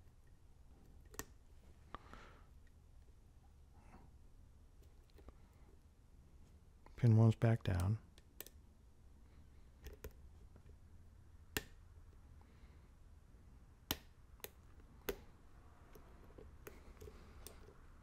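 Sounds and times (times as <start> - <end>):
faint clicks of lock picking: 9.8 - 10.2, 15.9 - 17.8.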